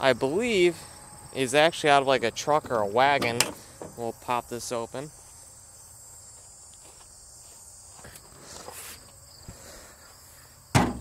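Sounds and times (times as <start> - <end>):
crickets chirring: 0.0 - 11.0
car hood clunking open: 10.7 - 11.0.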